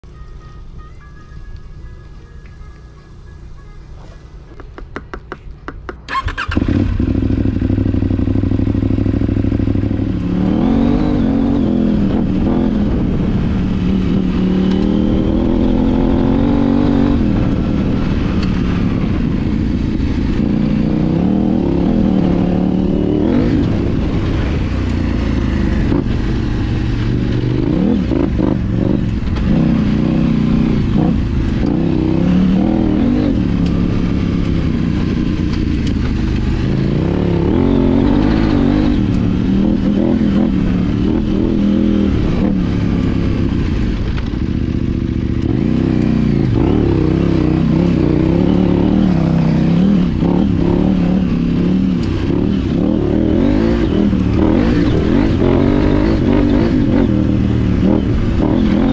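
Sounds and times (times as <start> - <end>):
motorcycle engine revving: 5.8 - 58.9
motorcycle starter cranking: 6.0 - 6.9.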